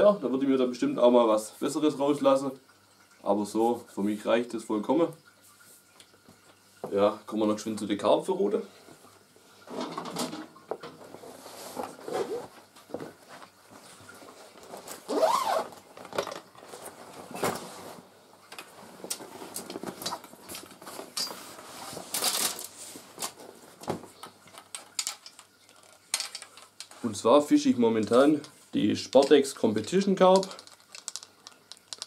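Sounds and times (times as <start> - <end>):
fabric rustling: 11.1 - 15.8
fishing rod handling clicks and knocks: 24.2 - 27.0, 28.0 - 32.0.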